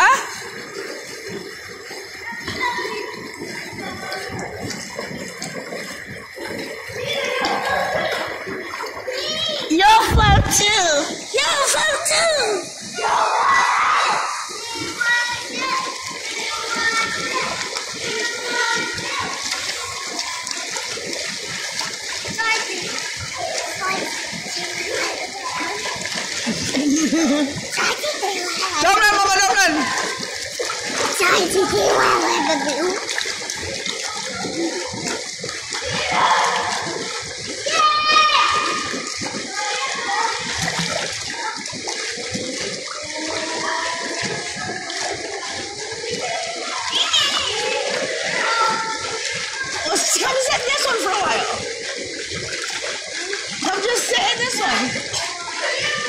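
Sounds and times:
pool water sloshing and splashing: 0:00.0 - 0:56.0.

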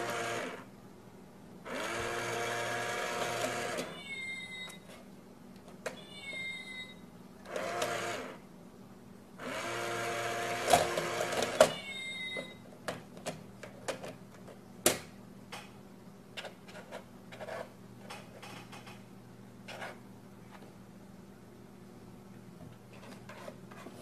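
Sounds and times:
toy electric motor whirring: 0:00.0 - 0:00.6, 0:01.7 - 0:04.0, 0:07.5 - 0:08.4, 0:09.4 - 0:11.7.

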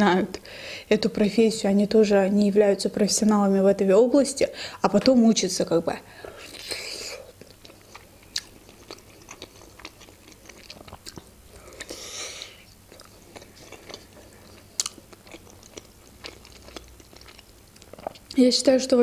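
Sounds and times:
quiet chewing: 0:06.3 - 0:18.4
biting food: 0:12.9 - 0:18.3.

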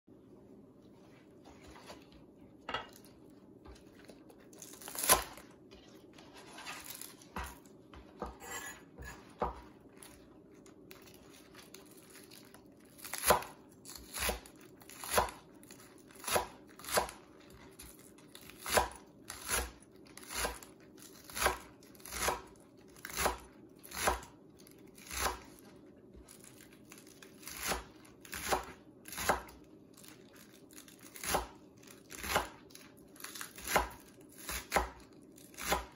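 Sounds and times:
knife chopping on cutting board: 0:06.3 - 0:09.8, 0:13.0 - 0:15.4, 0:16.2 - 0:17.2, 0:18.5 - 0:24.3, 0:25.0 - 0:25.4, 0:27.4 - 0:29.5, 0:31.1 - 0:32.6, 0:33.3 - 0:35.9.

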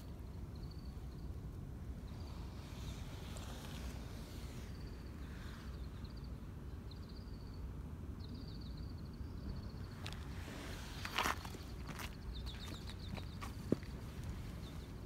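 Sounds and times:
small bird chirping: 0:00.0 - 0:01.4, 0:11.0 - 0:15.0
low outdoor rumble: 0:00.0 - 0:15.0.

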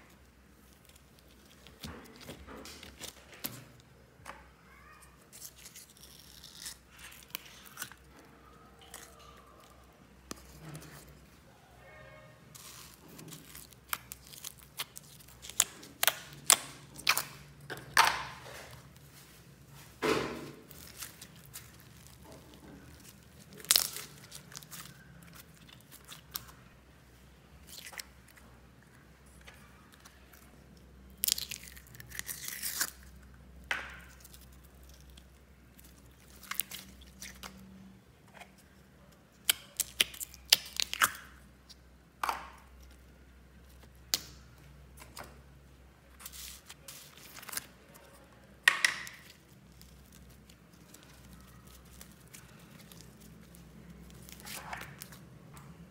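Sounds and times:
slime popping and squelching: 0:20.2 - 0:26.6.

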